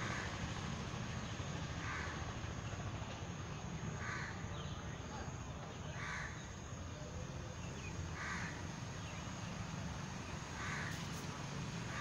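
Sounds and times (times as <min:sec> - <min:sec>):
crow cawing: 0:04.0 - 0:04.4, 0:08.2 - 0:08.6, 0:10.6 - 0:10.9.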